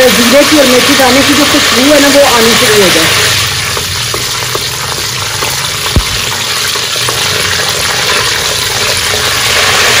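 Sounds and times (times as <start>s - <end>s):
seeds sizzling in hot oil: 0.0s - 10.0s
wooden spoon stirring: 3.2s - 10.0s.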